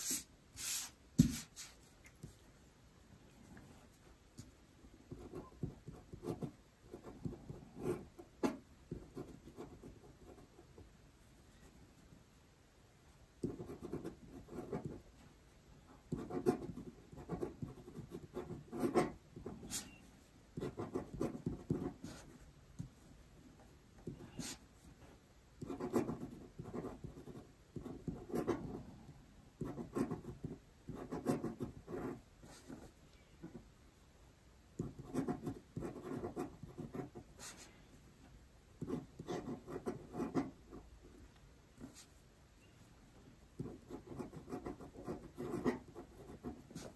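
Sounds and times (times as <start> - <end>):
pen scratching on paper: 5.1 - 10.6, 13.4 - 15.0, 16.1 - 20.0, 20.6 - 22.4, 25.6 - 28.8, 29.6 - 33.6, 34.8 - 37.7, 38.8 - 40.9, 43.6 - 46.9.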